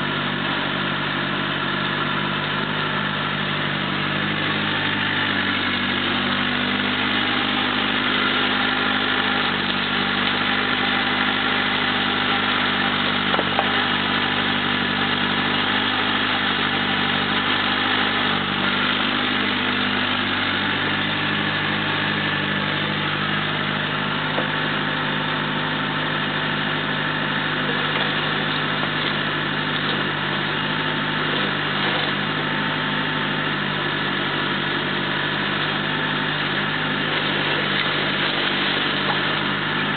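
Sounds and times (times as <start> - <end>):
excavator diesel engine running: 0.0 - 39.9
bucket digging and dumping soil: 2.7 - 39.9.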